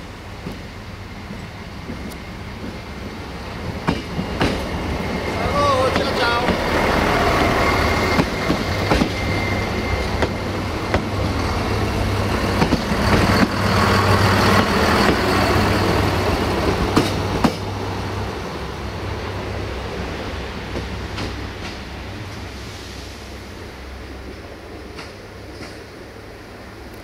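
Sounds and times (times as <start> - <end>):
diesel train passing: 0.0 - 27.0
train wheels clicking over rail joints: 1.3 - 17.8, 20.7 - 21.9, 24.9 - 25.9.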